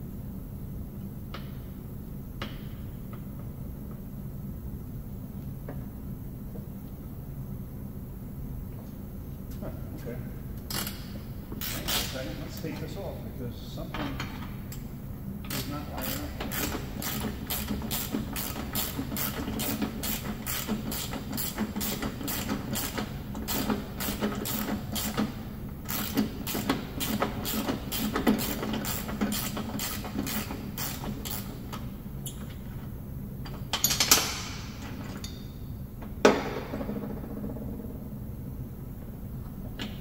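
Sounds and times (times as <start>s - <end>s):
hand ratchet clicking: 15.4s - 31.8s.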